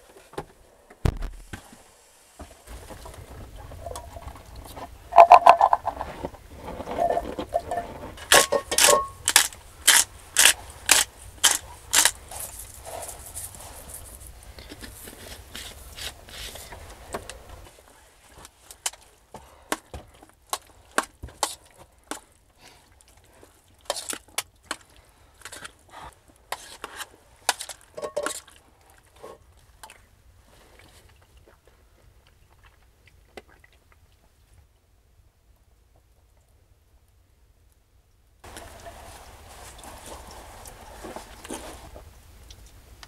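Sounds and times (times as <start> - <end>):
noisy rustling: 0.0 - 19.6, 38.4 - 43.0
knocks and clatters of handled objects: 2.7 - 22.3, 23.4 - 29.4.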